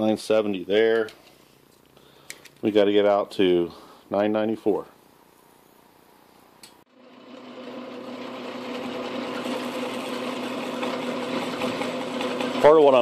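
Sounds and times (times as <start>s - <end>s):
metal lathe humming: 6.9s - 13.0s.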